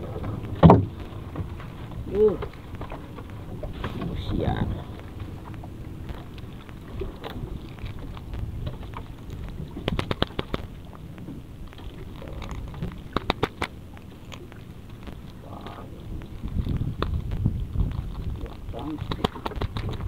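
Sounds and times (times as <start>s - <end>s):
steady low rumble: 0.0s - 20.0s
sharp clicks: 6.0s - 11.3s, 12.4s - 14.4s.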